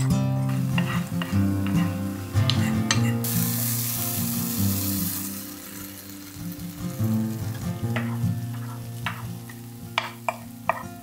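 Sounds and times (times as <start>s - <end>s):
food frying in a pan: 0.0s - 11.0s
loud sizzle: 0.0s - 11.0s
wooden spatula scraping a pan: 0.4s - 3.2s.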